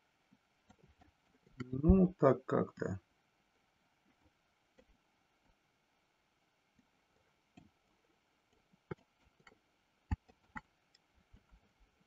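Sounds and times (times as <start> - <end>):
computer mouse and keyboard clicks: 8.5 - 11.7.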